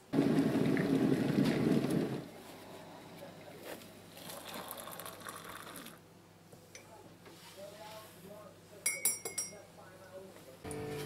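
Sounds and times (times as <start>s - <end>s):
water pouring into a mug: 4.2s - 6.0s.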